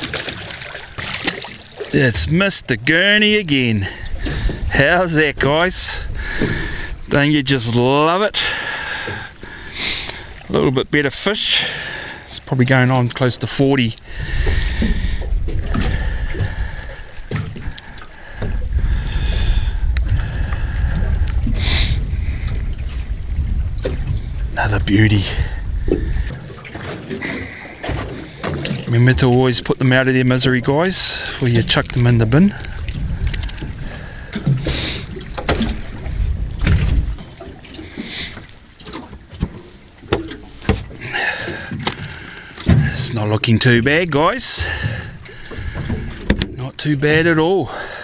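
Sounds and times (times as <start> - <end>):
water lapping against boat hull: 0.0 - 48.0
wind on microphone: 3.3 - 7.3, 14.0 - 28.2, 30.5 - 38.4
faint clicks: 32.6 - 33.7.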